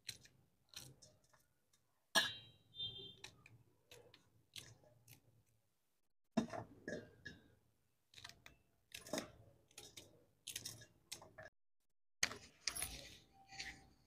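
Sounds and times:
knife cutting chillies on steel plate: 0.0s - 1.5s
rustling and handling: 12.2s - 14.0s.

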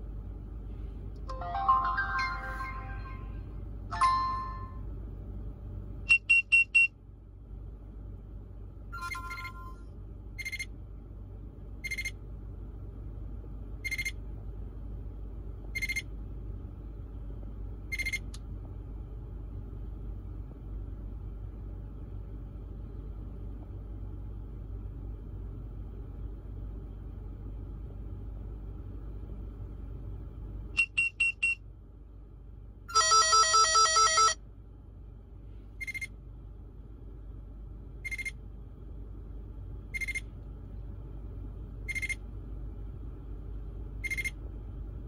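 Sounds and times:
electronic chime melody: 1.3s - 4.8s
short warning beeps: 41.9s - 42.2s.

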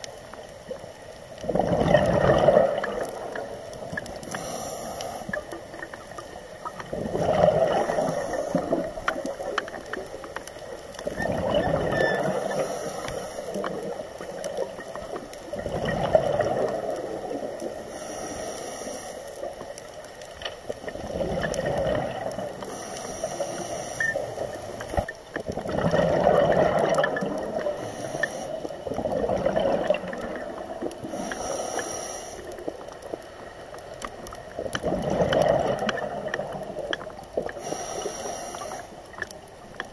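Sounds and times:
exhaled bubbles gushing: 1.4s - 4.3s, 5.4s - 12.8s, 13.5s - 17.8s, 20.7s - 22.7s, 24.0s - 31.3s, 32.6s - 37.6s
regulator inhale hiss: 4.2s - 5.8s, 7.8s - 9.0s, 12.3s - 14.0s, 17.7s - 19.8s, 22.5s - 25.1s, 27.6s - 28.9s, 31.0s - 32.8s, 37.5s - 39.2s.

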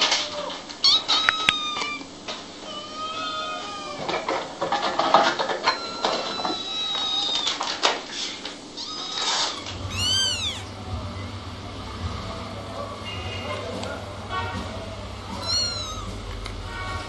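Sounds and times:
kittens mewing: 0.0s - 4.3s, 5.6s - 7.7s, 8.7s - 10.8s, 15.3s - 16.3s.

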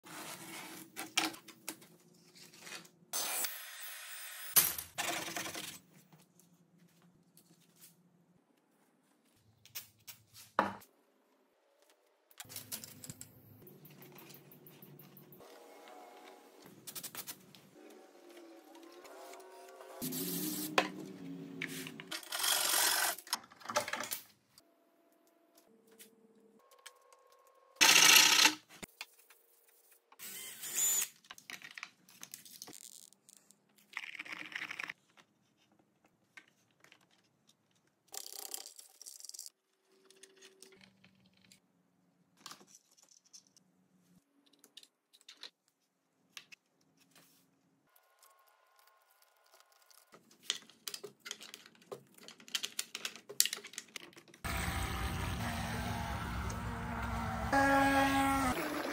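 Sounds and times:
rasping bursts: 54.5s - 58.9s.

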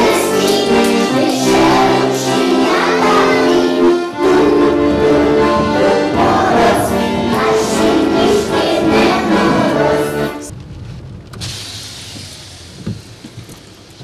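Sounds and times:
children singing: 0.0s - 10.5s
musical accompaniment: 0.0s - 10.5s.

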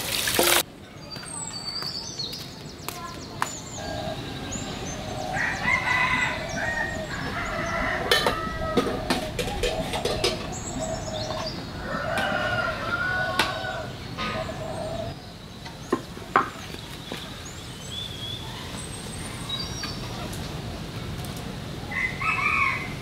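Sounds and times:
chickens calling: 3.8s - 15.2s
cookware clicks and knocks: 8.1s - 10.4s.

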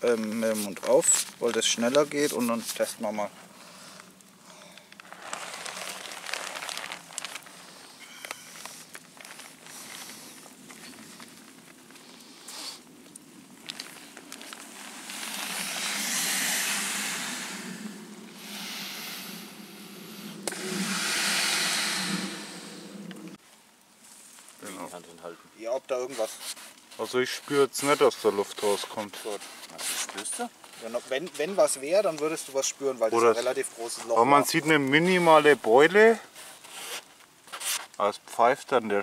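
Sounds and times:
nylon mat rustling and crinkling: 0.0s - 3.4s, 4.9s - 18.0s, 25.9s - 38.0s
breaths blown into valve: 15.0s - 23.4s.

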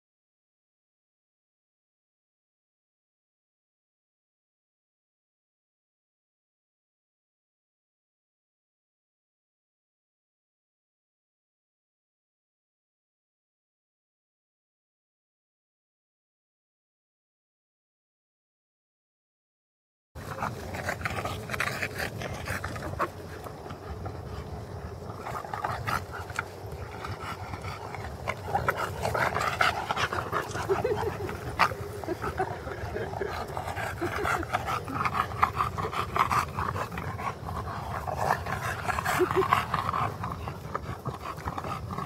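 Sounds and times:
dog vocal noises: 20.2s - 42.0s
dogs breathing hard and panting: 20.2s - 42.0s.

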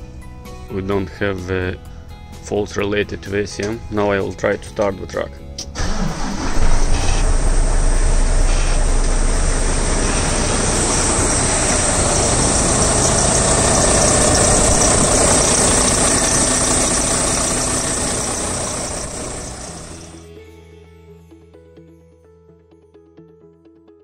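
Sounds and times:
diesel engine idling: 5.8s - 20.2s.

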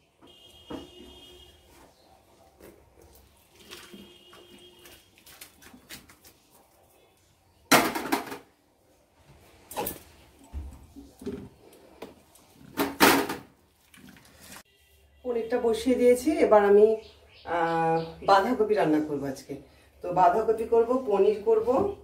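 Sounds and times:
milk pouring into cloth: 3.0s - 6.2s.

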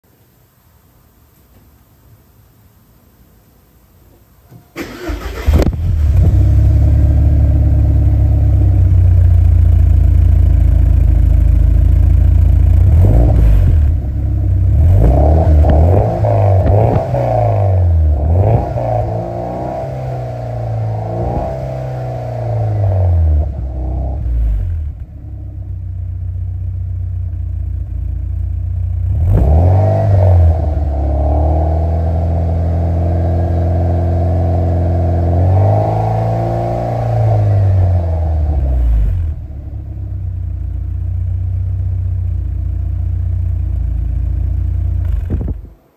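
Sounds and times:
car engine idling: 4.8s - 19.5s, 20.2s - 29.2s, 39.2s - 45.8s
engine revving blips: 14.7s - 24.8s.

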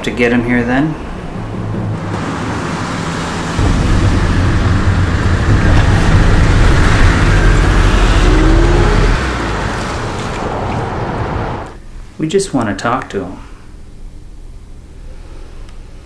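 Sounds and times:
car engine and road noise: 0.0s - 11.8s.

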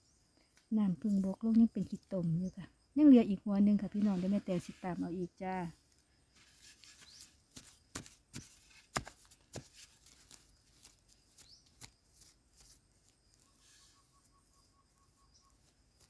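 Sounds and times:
hand scraping through soil: 3.9s - 5.4s, 6.3s - 16.0s
clicks of clods and grit: 6.4s - 13.6s.

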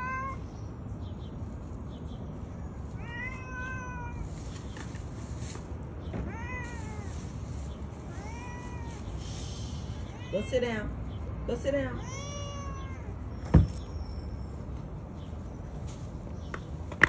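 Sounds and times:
cat meowing: 0.0s - 0.4s, 3.0s - 4.4s, 6.2s - 7.2s, 8.0s - 9.2s, 10.0s - 10.8s, 11.9s - 13.3s.

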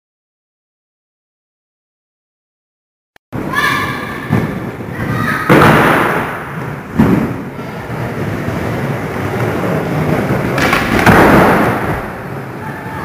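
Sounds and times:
skateboard wheels rolling: 4.3s - 13.0s
skateboard clattering: 5.0s - 12.6s
skateboard knock: 10.4s - 12.2s.

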